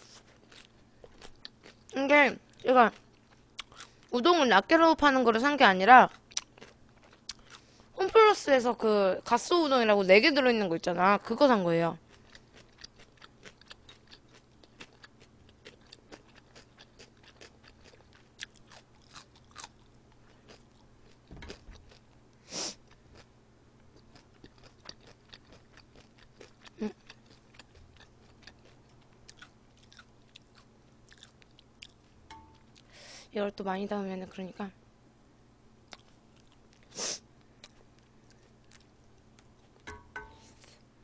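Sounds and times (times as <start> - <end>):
person chewing: 0.0 - 4.0, 6.1 - 7.7, 12.1 - 23.3, 23.9 - 32.9, 35.9 - 39.8
chopsticks tapping a bowl: 32.3 - 32.6, 39.8 - 40.5.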